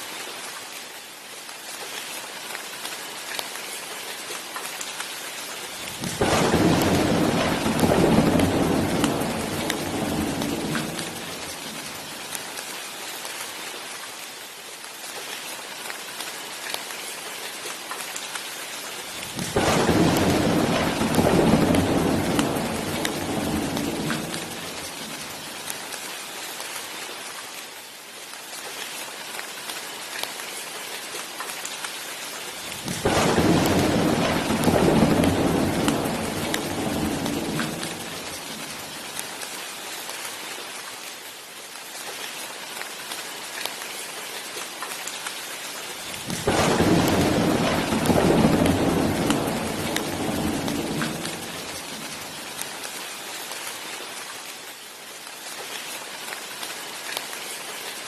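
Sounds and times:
rain falling: 0.0 - 58.0
thunder rumbling: 5.9 - 12.3, 19.2 - 25.5, 32.7 - 39.2, 46.2 - 52.4.

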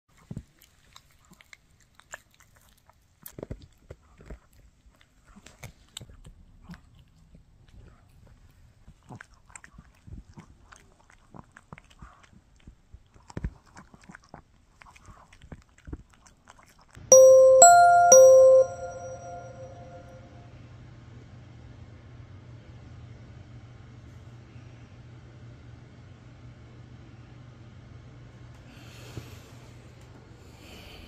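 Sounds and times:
dog chewing with crunches: 8.9 - 16.9.

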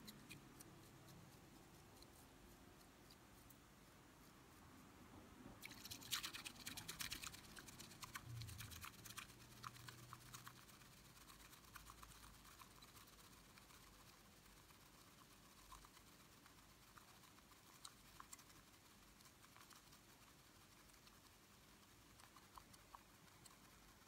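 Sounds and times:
whisk frothing tea in bowl: 5.6 - 21.0.

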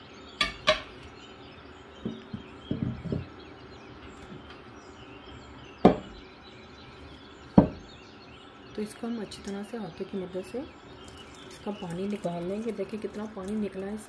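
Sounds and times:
birds chirping faintly: 0.0 - 14.0
dishes knocking on wooden table: 2.0 - 3.3, 5.8 - 6.2, 7.6 - 7.8.

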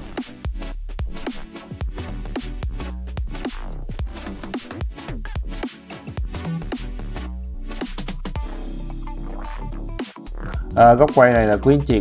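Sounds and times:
electronic music: 0.0 - 12.0
deep kick drums: 8.4 - 9.8.

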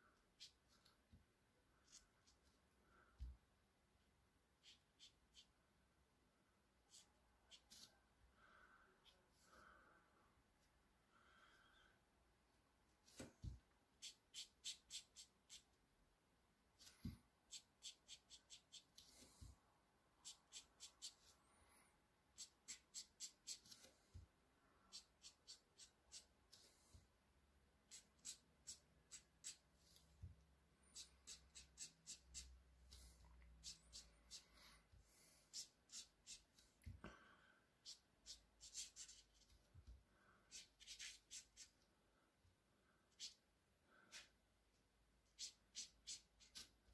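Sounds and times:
ink pen scratching on paper: 27.9 - 29.7, 30.9 - 34.4, 35.5 - 36.6, 40.5 - 41.8, 45.3 - 46.7.

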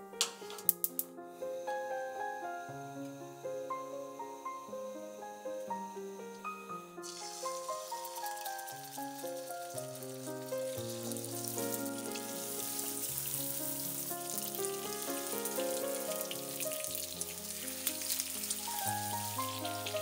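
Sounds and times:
background music: 0.0 - 20.0
chicken sizzling in hot oil: 7.0 - 20.0.

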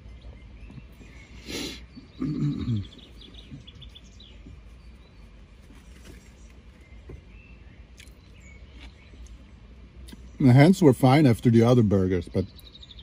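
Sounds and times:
faint high bird chirps: 0.0 - 9.4, 12.2 - 13.0
low steady rumble: 0.0 - 13.0
breathy rush of air: 1.4 - 2.0.

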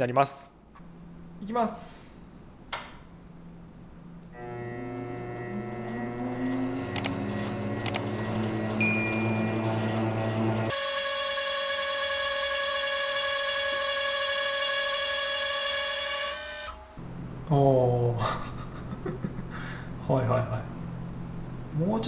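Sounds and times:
lathe motor whining: 4.3 - 17.0
high metallic ring: 8.8 - 10.0.

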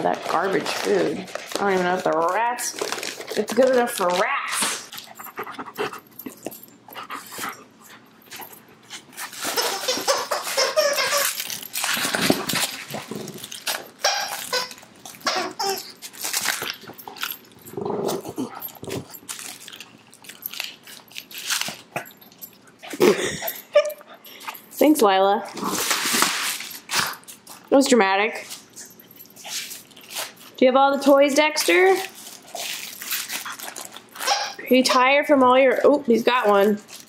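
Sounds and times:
dogs scuffling and snuffling: 0.0 - 23.6.

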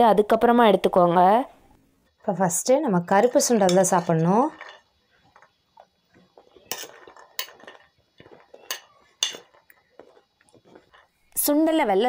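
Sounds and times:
metal spoon clinking on bowl: 3.5 - 5.5, 6.6 - 9.8.

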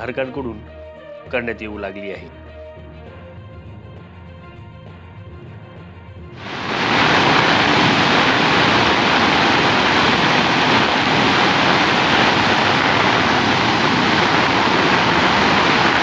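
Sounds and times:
water rushing over weir: 6.4 - 16.0.

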